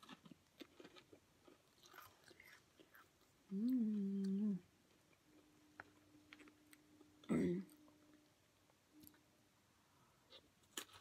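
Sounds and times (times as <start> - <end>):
chewing and biting fried chicken: 0.0 - 3.1
person humming mmm: 3.5 - 4.7.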